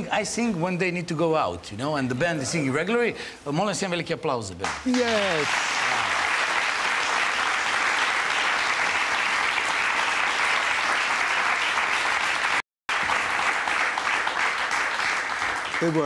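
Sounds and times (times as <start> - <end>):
audience applauding: 4.6 - 16.0.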